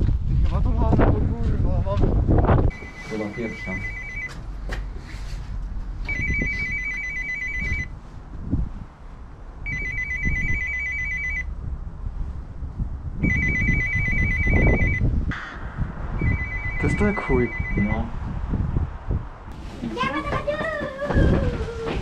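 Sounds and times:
intercom trilling ring: 0:02.7 - 0:04.4, 0:06.1 - 0:07.9, 0:09.7 - 0:11.5, 0:13.2 - 0:15.0, 0:16.2 - 0:18.1.

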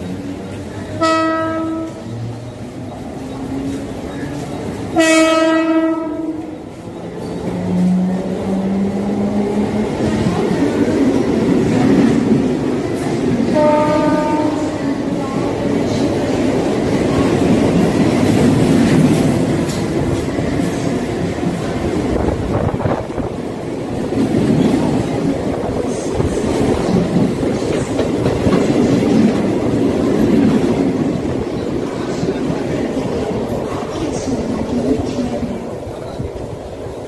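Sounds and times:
electric train rumbling: 0:00.0 - 0:37.0
train horn blast: 0:01.0 - 0:02.1, 0:05.0 - 0:06.5, 0:13.5 - 0:15.0
wind buffeting microphone: 0:15.0 - 0:37.0.

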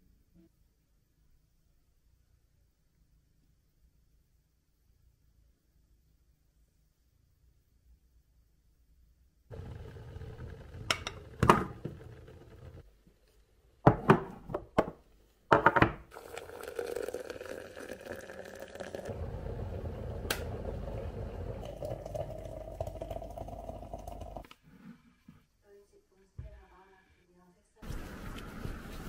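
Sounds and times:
water pouring into glass: 0:16.1 - 0:24.4.

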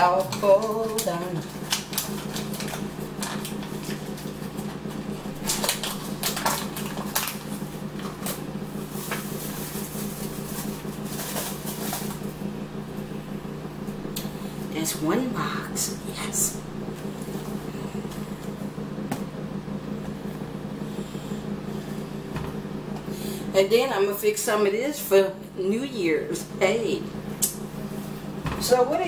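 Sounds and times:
steady low hum: 0:00.0 - 0:29.0
box and paper pouch crinkling: 0:08.9 - 0:12.3.

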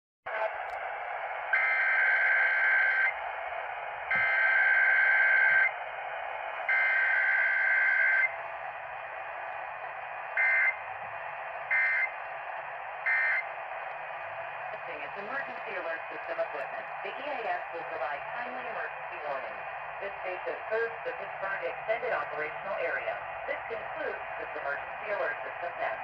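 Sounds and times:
radio static hiss: 0:13.4 - 0:26.0.

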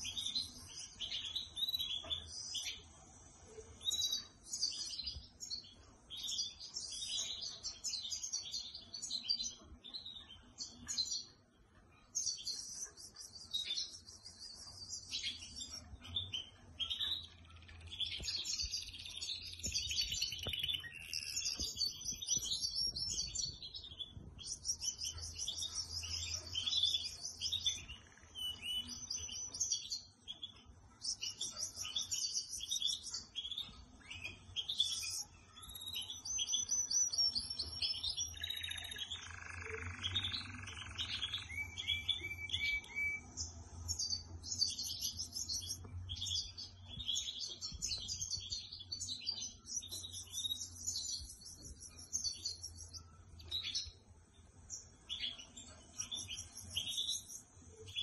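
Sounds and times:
canary singing: 0:12.1 - 0:58.0.

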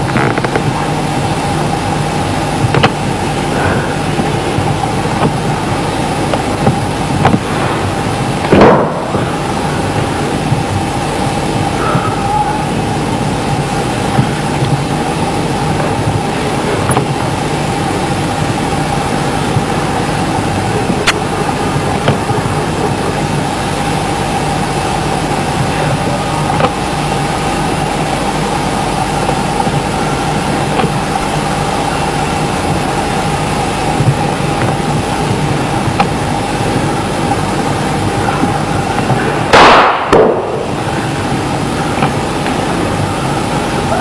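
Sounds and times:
constant hum: 0:00.0 - 0:44.0.

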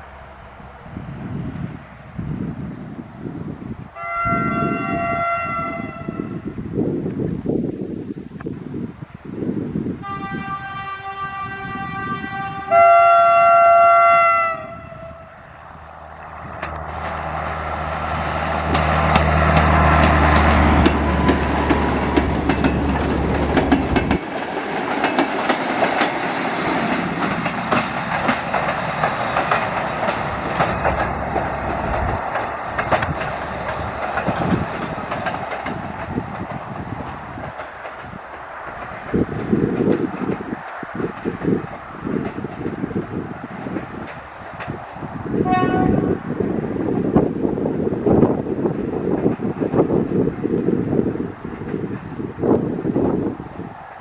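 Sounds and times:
engine rumbling past: 0:00.0 - 0:04.0, 0:14.5 - 0:46.4
draisine horn blasts: 0:04.0 - 0:06.4, 0:10.0 - 0:15.4, 0:45.4 - 0:46.2
wheels clicking over rail joints: 0:16.0 - 0:45.9.

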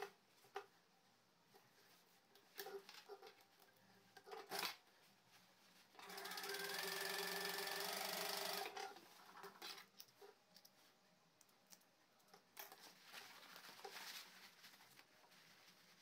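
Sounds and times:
cloth rustling: 0:04.8 - 0:06.0, 0:12.8 - 0:16.0
sewing machine running: 0:06.0 - 0:08.9.

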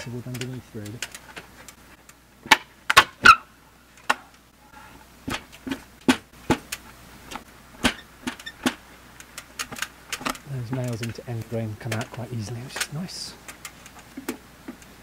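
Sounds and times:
nails pulling out of wood: 0:05.3 - 0:11.0
wooden knocks and clatters: 0:05.3 - 0:11.2.

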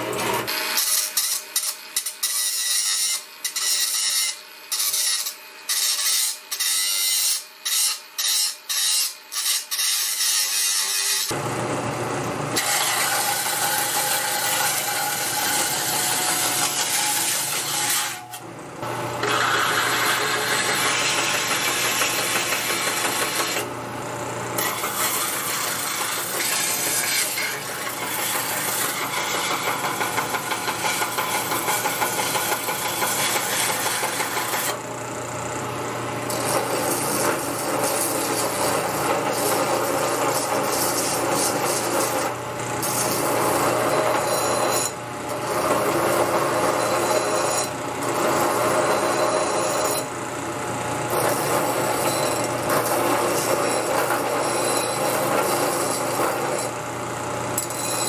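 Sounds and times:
angle grinder grinding metal: 0:00.0 - 0:11.4, 0:12.6 - 0:23.7, 0:24.5 - 0:34.8, 0:36.2 - 0:50.2, 0:51.0 - 0:58.0
belt sander humming: 0:11.3 - 0:34.8.

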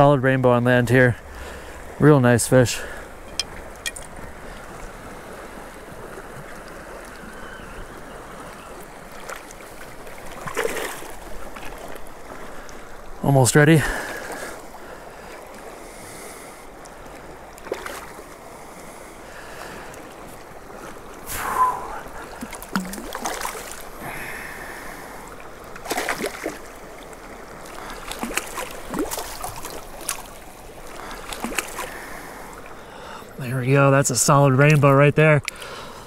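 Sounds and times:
river flowing: 0:00.0 - 0:36.0
fish splashing at surface: 0:22.3 - 0:23.9, 0:25.8 - 0:26.6.

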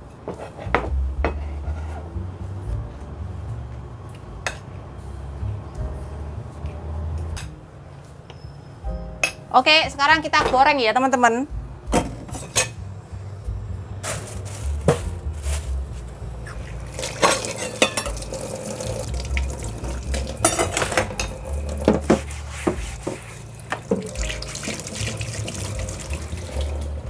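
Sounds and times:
items clattering in sink: 0:16.9 - 0:22.3, 0:23.0 - 0:26.8
tap running into sink: 0:17.2 - 0:26.7.

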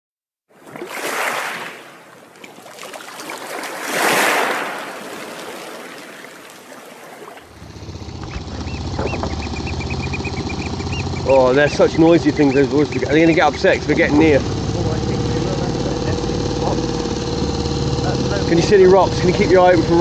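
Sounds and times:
small boat engine idling: 0:07.4 - 0:20.0
oystercatchers piping: 0:07.6 - 0:14.8.

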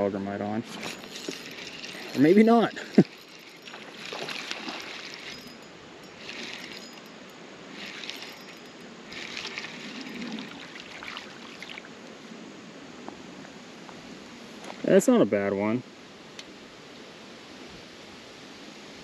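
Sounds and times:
stream rushing: 0:00.0 - 0:13.4
fishing reel clicking whir: 0:00.8 - 0:11.4.

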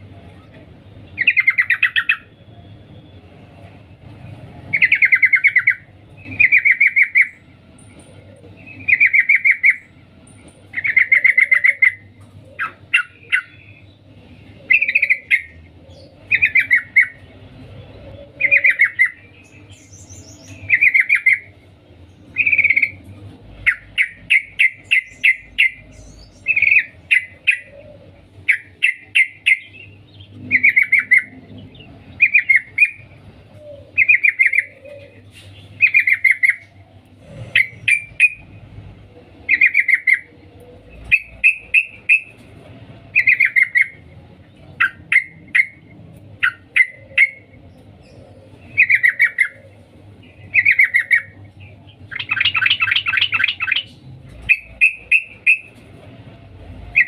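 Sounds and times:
bird chattering calls: 0:04.7 - 0:07.4, 0:10.7 - 0:13.9, 0:14.6 - 0:17.3, 0:22.3 - 0:38.6, 0:39.5 - 0:42.4, 0:43.1 - 0:55.8.

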